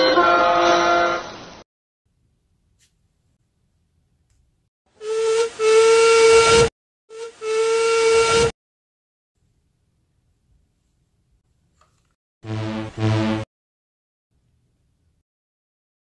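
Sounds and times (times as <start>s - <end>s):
steam whistle toots: 0.0s - 1.6s, 4.9s - 8.6s
steam hissing: 5.0s - 6.6s.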